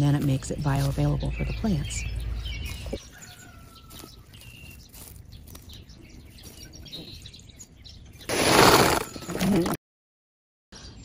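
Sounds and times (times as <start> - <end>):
birds chirping faintly: 0.0 - 9.7.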